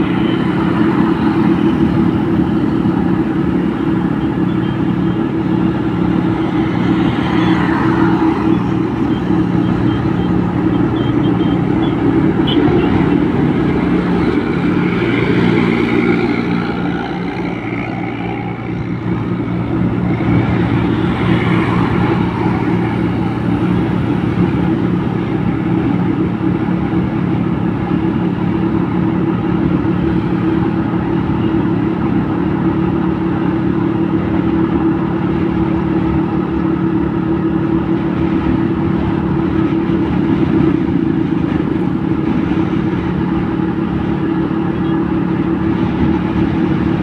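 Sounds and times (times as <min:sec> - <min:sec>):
road and wind noise: 0:00.0 - 0:47.0
traffic passing: 0:00.0 - 0:47.0
vehicle engine cruising: 0:00.0 - 0:47.0.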